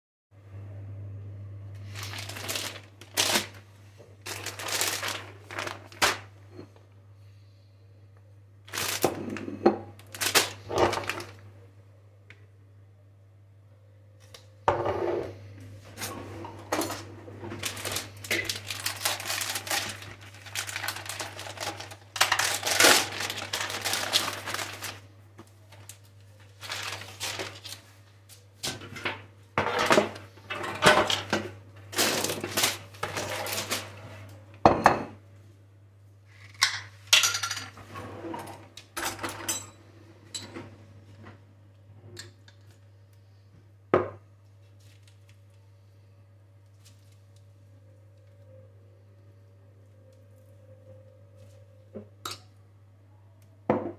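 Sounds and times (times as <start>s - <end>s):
plastic packaging crinkling: 1.8s - 6.3s, 8.7s - 9.4s, 10.0s - 11.4s, 16.0s - 28.5s, 30.8s - 34.0s, 44.7s - 45.5s
baking tray and utensils clattering: 14.7s - 25.0s, 28.6s - 35.2s, 36.4s - 40.8s.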